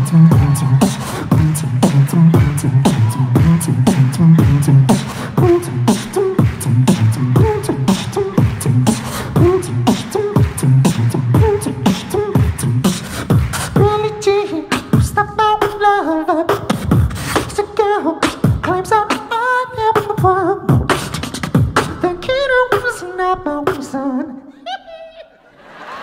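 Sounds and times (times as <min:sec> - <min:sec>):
wavering vocal melody: 0:00.0 - 0:16.7
beatboxing into microphone: 0:00.0 - 0:25.3.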